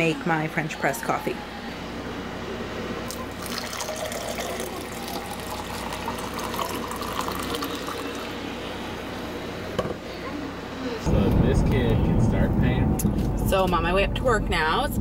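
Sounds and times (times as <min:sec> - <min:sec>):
coffee pouring into a mug: 0:03.1 - 0:08.4.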